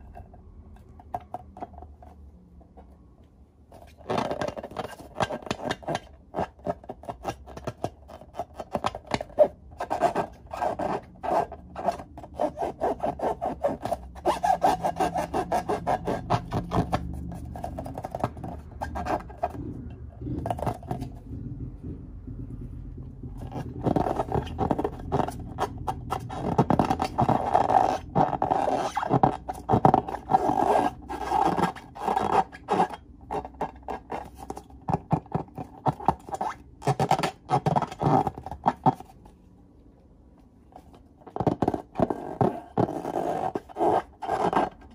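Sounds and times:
hands rubbing balloons: 3.7 - 39.4, 40.8 - 44.9.

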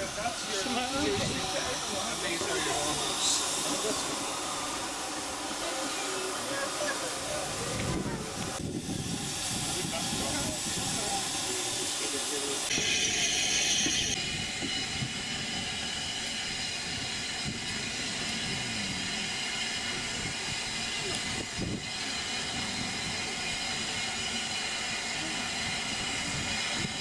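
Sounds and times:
voices in the background: 0.0 - 12.8
loud hiss of steam: 0.0 - 27.0
steam train running: 0.0 - 27.0.

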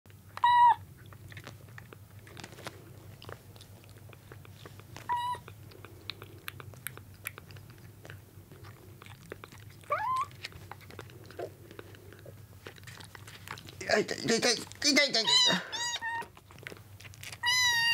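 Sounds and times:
kittens mewing: 0.3 - 0.9, 5.0 - 6.8, 9.2 - 10.4, 14.9 - 16.6, 17.3 - 17.9.

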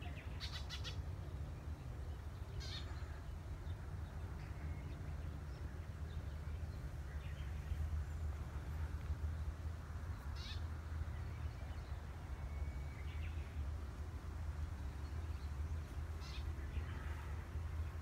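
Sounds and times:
short bird calls: 0.0 - 1.0, 2.6 - 3.2, 10.2 - 10.6
steady low rumble: 0.0 - 18.0.

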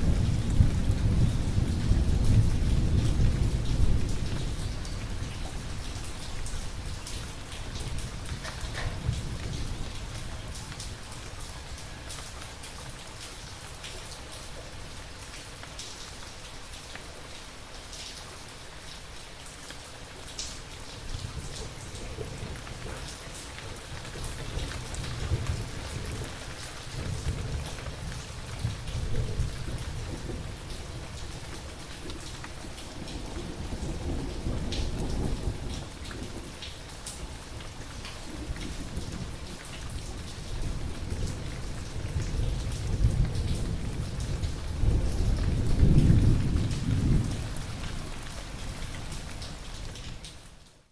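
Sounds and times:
low rolling thunder: 0.0 - 10.0, 23.7 - 36.6, 38.2 - 48.8
raindrops pattering: 0.0 - 50.9
steady rain: 0.0 - 50.9.

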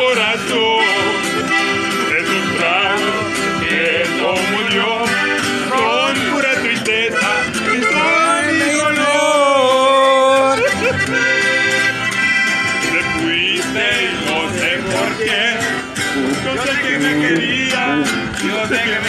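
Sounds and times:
accordion melody: 0.0 - 19.0
strummed acoustic guitar: 0.0 - 19.0.

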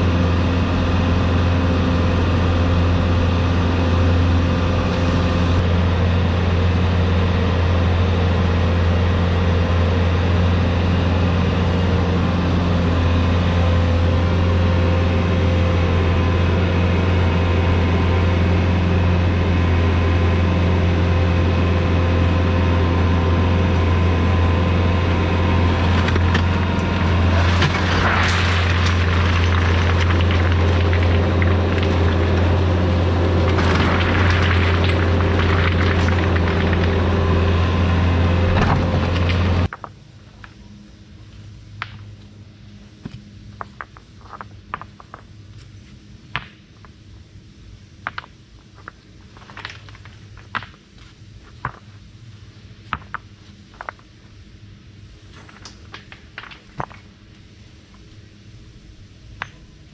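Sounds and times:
loader engine humming: 0.0 - 46.2
stones tumbling and clattering: 25.7 - 40.6, 43.0 - 45.7, 48.0 - 52.0, 52.8 - 54.2, 55.3 - 57.2.

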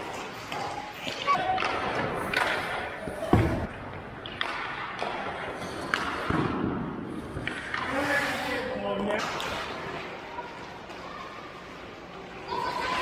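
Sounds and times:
hockey sticks and puck clacking: 0.0 - 13.0
skate blades scraping ice: 7.1 - 11.1.

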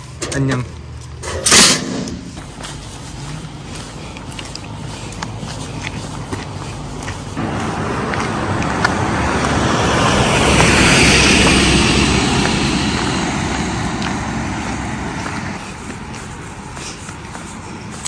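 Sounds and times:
vehicle driving past: 7.2 - 15.6.

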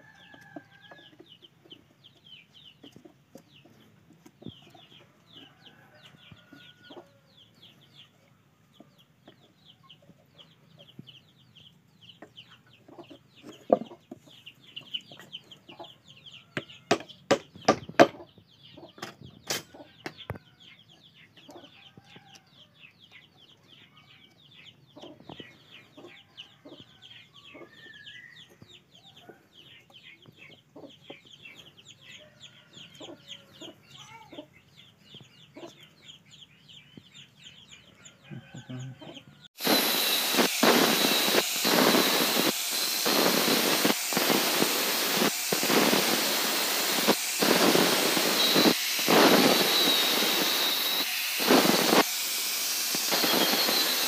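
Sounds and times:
chickens peeping and clucking: 0.0 - 39.5.

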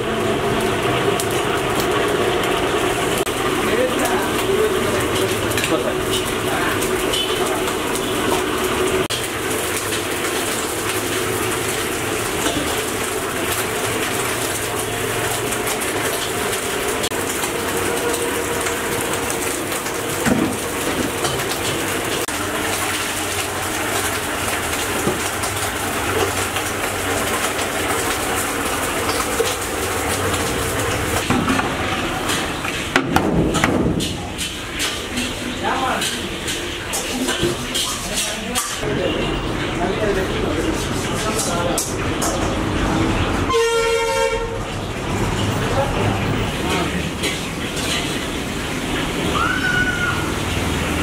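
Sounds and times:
gas burner running: 0.0 - 49.3
water boiling in pot: 0.0 - 51.0
steel pots knocking: 24.0 - 38.8.

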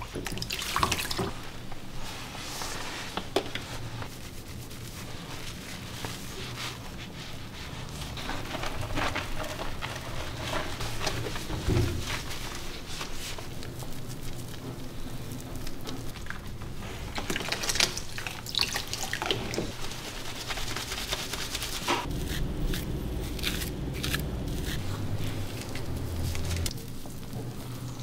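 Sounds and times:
water splashing in a plastic tub: 0.0 - 1.5, 16.9 - 19.8
wet fur lathered by hand: 0.0 - 28.0.

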